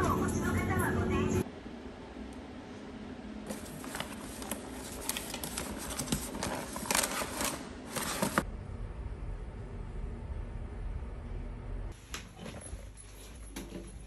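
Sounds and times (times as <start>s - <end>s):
paper flyers rustling and crinkling: 3.5s - 8.4s.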